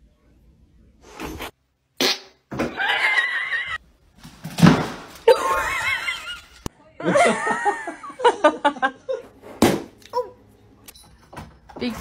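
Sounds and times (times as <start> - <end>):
person laughing: 5.3 - 9.3.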